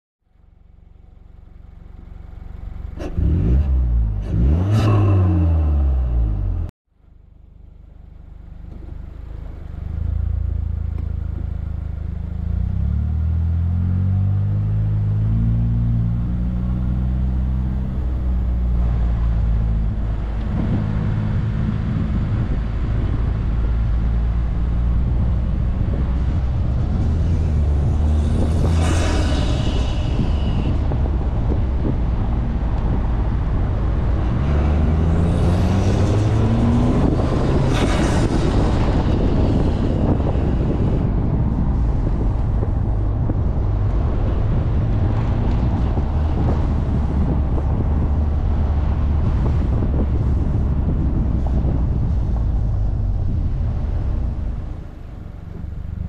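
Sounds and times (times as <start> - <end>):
car engine revving: 1.0 - 6.7, 12.2 - 56.0
car accelerating away: 2.3 - 6.7, 12.4 - 41.4
rush of air: 25.8 - 55.7.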